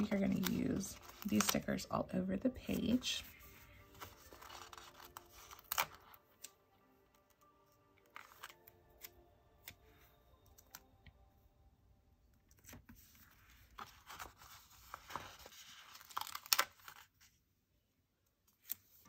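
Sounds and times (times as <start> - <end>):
stickers peeling and rustling: 0.0 - 1.8, 2.6 - 6.6, 12.5 - 17.3.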